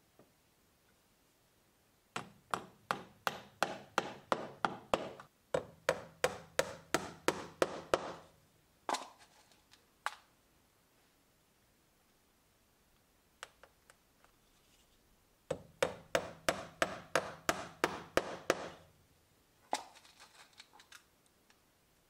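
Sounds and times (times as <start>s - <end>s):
tack hammer striking tacks: 2.2s - 8.3s, 15.5s - 18.9s.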